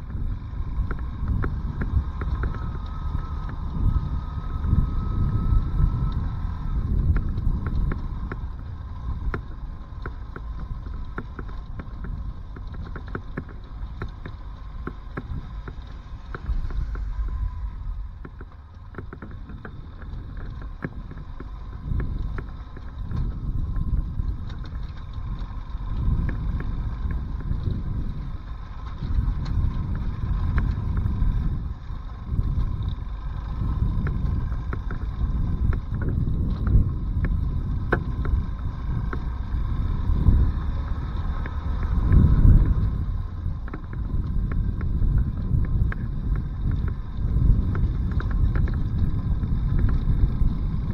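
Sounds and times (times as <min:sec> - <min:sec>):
motorcycle riding on gravel: 0:00.0 - 0:50.9
wind rumble on microphone: 0:00.0 - 0:50.9
stones clicking and knocking: 0:07.0 - 0:27.9.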